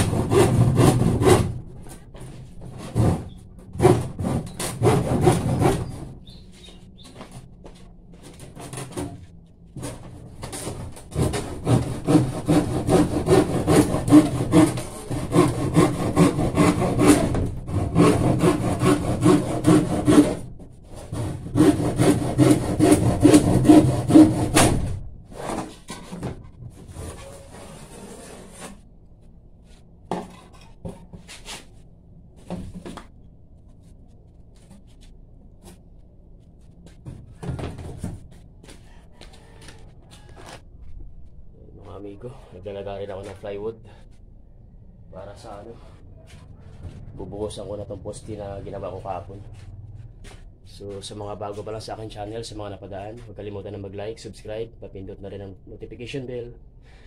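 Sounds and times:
hand saw cutting plywood: 0:00.0 - 0:06.7, 0:08.2 - 0:09.2, 0:09.8 - 0:28.8.

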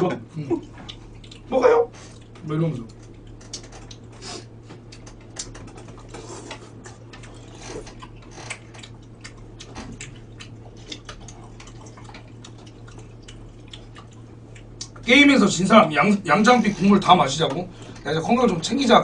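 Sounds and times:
steady low hum: 0:00.0 - 0:19.0
slurping and chewing: 0:03.1 - 0:15.0.

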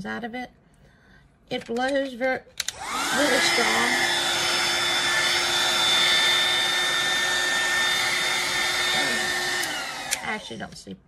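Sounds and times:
heat gun blowing air: 0:02.7 - 0:10.4.

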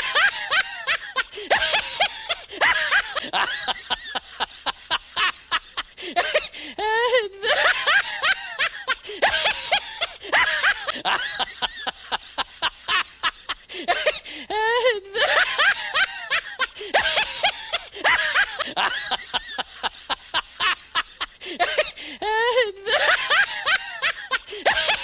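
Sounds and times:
high-pitched snickering and giggling: 0:00.0 - 0:06.5, 0:07.4 - 0:14.2, 0:15.1 - 0:22.0, 0:22.8 - 0:25.0.

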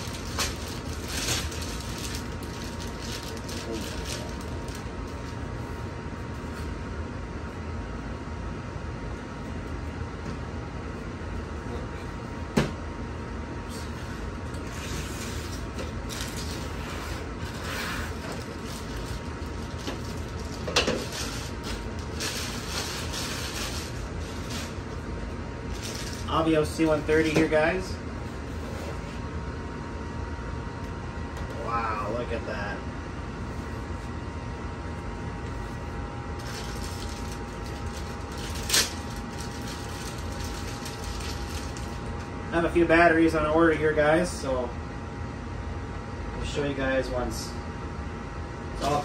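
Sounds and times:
plastic bags crinkling: 0:00.0 - 0:05.4, 0:15.6 - 0:16.8, 0:17.4 - 0:25.0, 0:25.6 - 0:26.4, 0:36.4 - 0:42.3
steady low hum: 0:00.0 - 0:49.0.

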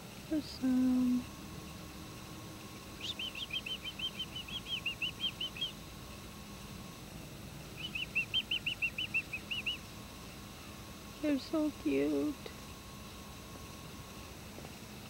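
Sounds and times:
finches chirping: 0:00.3 - 0:06.7, 0:07.7 - 0:10.0.

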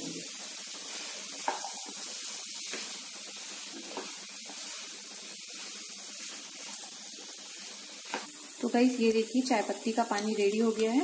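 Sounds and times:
food sizzling in a pan: 0:00.0 - 0:11.0
spatula scraping a pan: 0:00.8 - 0:08.4.

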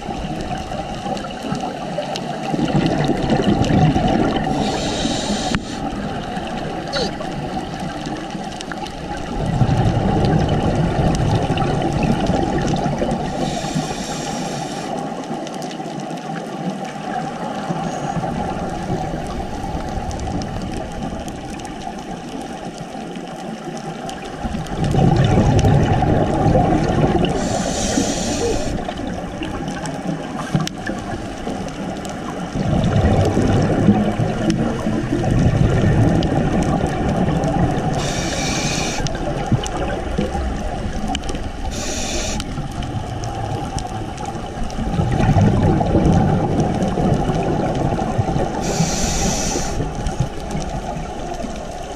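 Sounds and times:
underwater diver bubbles rumbling: 0:00.0 - 0:51.9
short hisses: 0:04.6 - 0:05.9, 0:13.4 - 0:14.9, 0:27.4 - 0:28.8, 0:38.0 - 0:39.1, 0:41.7 - 0:42.5, 0:48.6 - 0:49.8.

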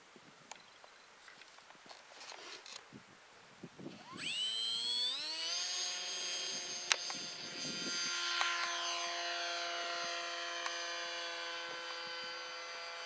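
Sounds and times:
electric motor and propeller whine: 0:03.8 - 0:13.0.

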